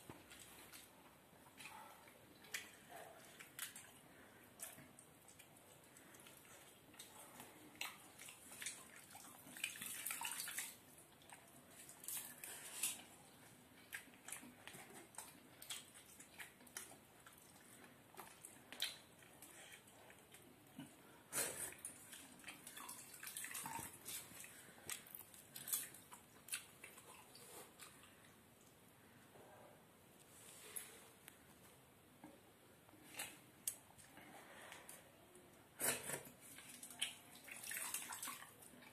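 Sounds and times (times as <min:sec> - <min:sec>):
eating clicks and smacks: 0:13.8 - 0:20.5.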